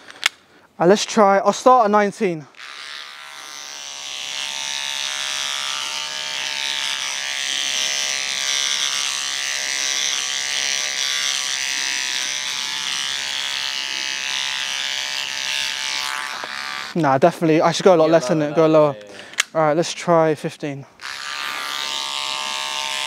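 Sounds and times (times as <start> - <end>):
beard trimmer motor humming: 2.5 - 17.0, 21.0 - 23.0
trimmer blade cutting hair: 2.5 - 19.5, 21.0 - 23.0.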